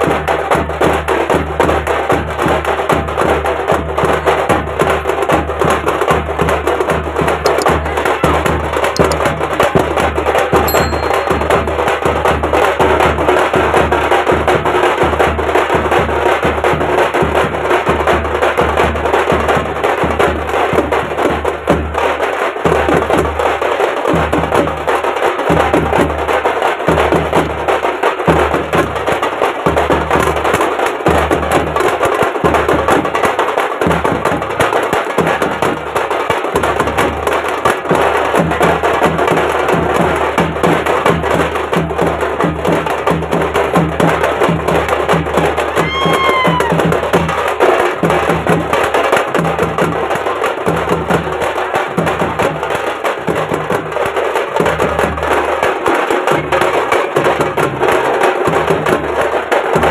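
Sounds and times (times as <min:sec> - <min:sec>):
bass drum: 0:00.0 - 0:22.1, 0:26.9 - 0:59.9
hand drums beaten with sticks: 0:00.0 - 0:59.9.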